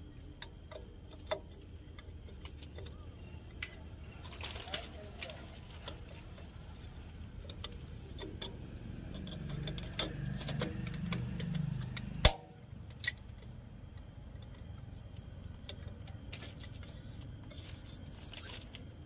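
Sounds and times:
plastic and metal parts clicking: 7.3s - 17.6s
sharp loud click: 12.2s - 12.6s.

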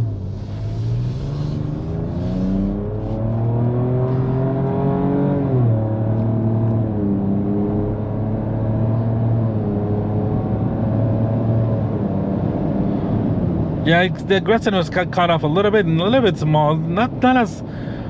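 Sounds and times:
engine accelerating: 0.0s - 8.8s.

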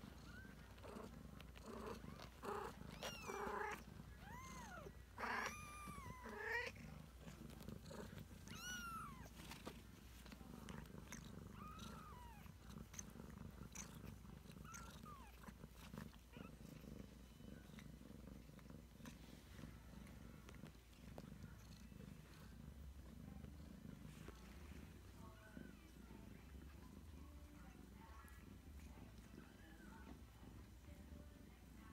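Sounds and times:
cat purring: 0.0s - 31.9s
kittens mewing: 2.0s - 6.8s, 8.1s - 9.4s.

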